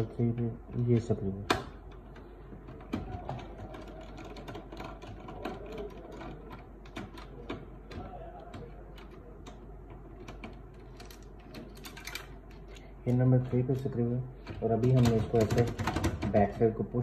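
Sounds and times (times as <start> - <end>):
low steady hum: 0.0 - 17.0
screwdriver clicking and rattling: 10.2 - 12.8.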